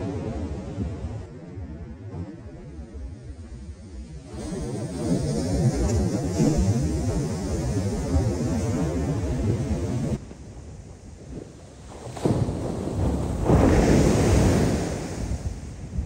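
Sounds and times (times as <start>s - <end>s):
waves crashing on beach: 11.4s - 16.0s.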